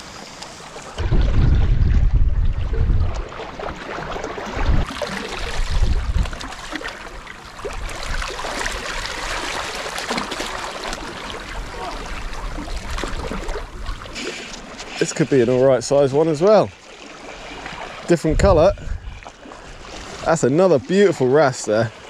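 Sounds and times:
water splashing among rocks: 0:00.9 - 0:15.4
wind buffeting microphone: 0:01.0 - 0:03.4, 0:04.5 - 0:06.5, 0:18.2 - 0:20.3.

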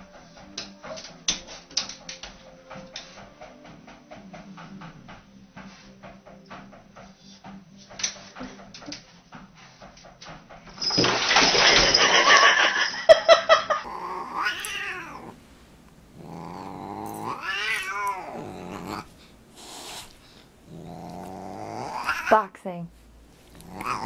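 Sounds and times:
cat yowling: 0:13.8 - 0:15.4, 0:16.2 - 0:19.1, 0:20.7 - 0:22.4, 0:23.6 - 0:24.0
loud rushing hiss-like noise: 0:19.2 - 0:20.6.

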